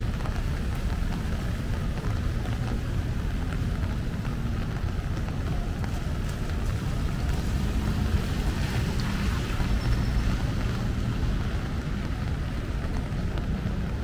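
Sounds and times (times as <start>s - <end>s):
low traffic rumble: 0.0s - 14.0s
tyres hissing on wet road: 0.0s - 14.0s.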